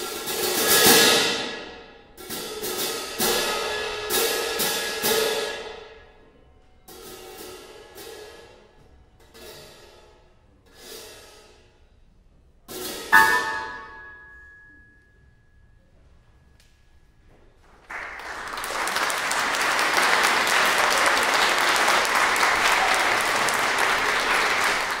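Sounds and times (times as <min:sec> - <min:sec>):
clash cymbals ringing: 0:12.9 - 0:15.3
audience applause: 0:17.8 - 0:25.0.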